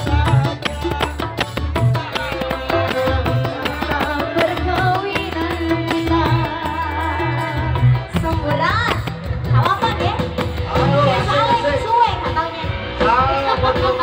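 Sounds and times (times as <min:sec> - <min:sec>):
woman singing into microphone: 0:00.0 - 0:10.2
hand drum beat: 0:00.0 - 0:11.8.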